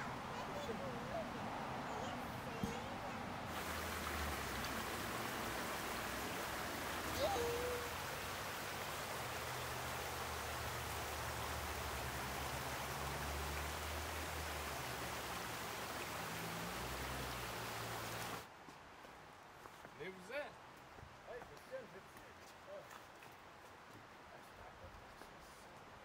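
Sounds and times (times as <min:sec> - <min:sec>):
creek water flowing over stones: 0:00.0 - 0:18.5, 0:19.7 - 0:26.0.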